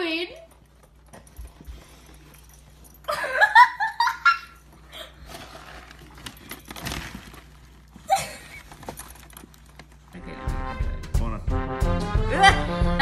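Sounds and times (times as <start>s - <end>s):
plastic trash bag rustling: 4.7s - 10.1s.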